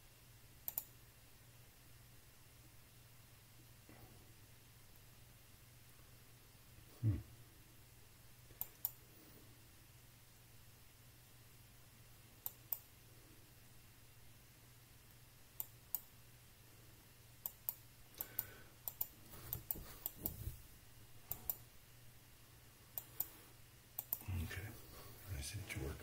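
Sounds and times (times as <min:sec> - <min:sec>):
faint low hum: 0:00.0 - 0:26.0
mouse and keyboard clicks: 0:00.6 - 0:00.9, 0:17.4 - 0:20.4, 0:24.0 - 0:24.2.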